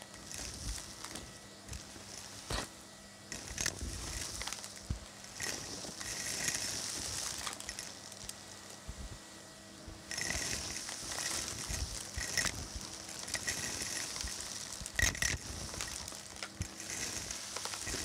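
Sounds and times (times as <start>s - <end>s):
vacuum hose suction hiss: 0.0s - 9.2s, 9.8s - 18.0s
hard bits rattling into hose: 10.1s - 18.0s.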